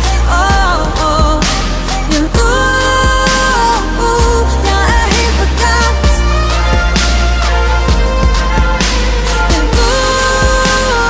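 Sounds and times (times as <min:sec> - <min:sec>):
pop song with held vocal note: 0:00.0 - 0:11.0
kick drum beat: 0:04.2 - 0:05.2, 0:06.0 - 0:07.0, 0:07.9 - 0:08.8.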